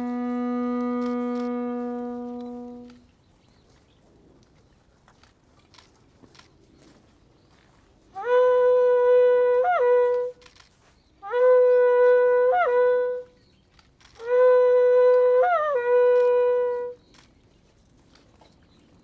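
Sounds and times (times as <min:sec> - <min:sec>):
horn blasts: 0:00.0 - 0:03.0, 0:08.2 - 0:10.4, 0:14.2 - 0:17.0.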